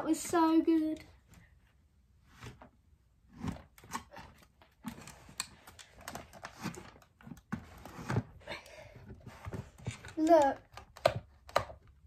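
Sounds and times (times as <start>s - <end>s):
plastic toys clicking: 9.9s - 11.8s.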